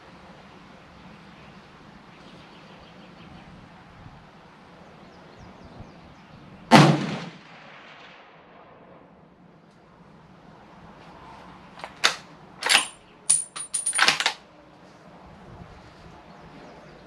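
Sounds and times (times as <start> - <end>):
rifle shot: 6.7 - 8.6.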